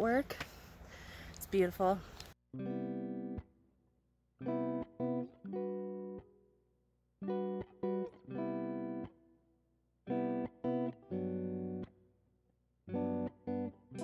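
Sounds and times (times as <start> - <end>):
guitar chords: 2.5 - 3.8, 4.4 - 6.6, 7.2 - 9.4, 10.0 - 12.2, 12.9 - 14.0.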